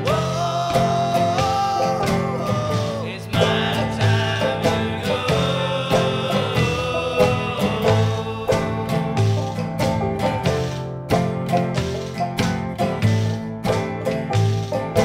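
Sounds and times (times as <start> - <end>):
person singing: 0.0 - 10.8
bluegrass string band: 0.0 - 15.0.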